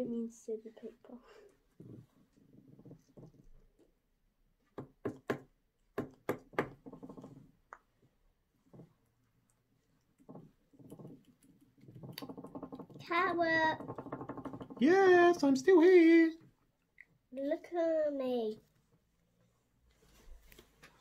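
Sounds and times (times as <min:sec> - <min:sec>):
paint pots tapping on tabletop: 0:04.6 - 0:09.0, 0:10.1 - 0:15.7.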